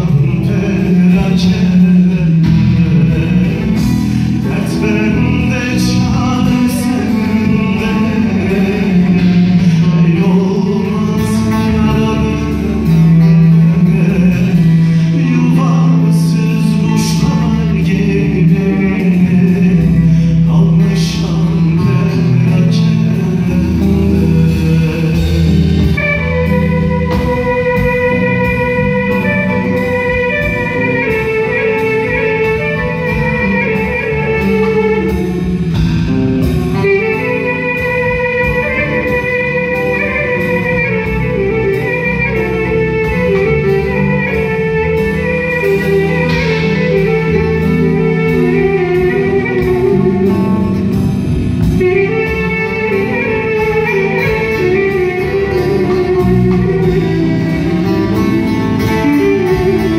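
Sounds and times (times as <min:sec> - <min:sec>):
electric bass: 0:00.0 - 0:59.9
steady beat: 0:22.2 - 0:59.9.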